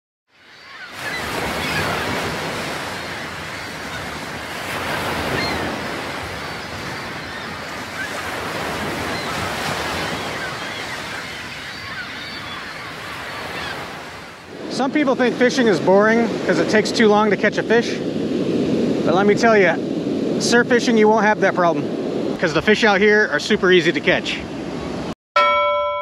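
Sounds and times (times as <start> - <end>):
ocean surf breaking: 0.4 - 25.2.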